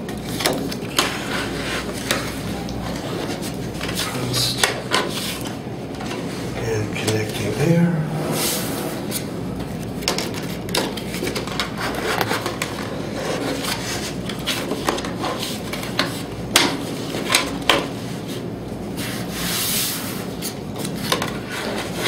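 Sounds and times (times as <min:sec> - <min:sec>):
plastic pieces scraping: 0:09.9 - 0:17.9.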